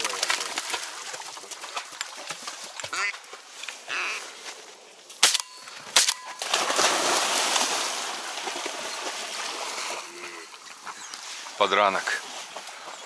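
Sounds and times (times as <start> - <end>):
shotgun shot: 5.2 - 6.2.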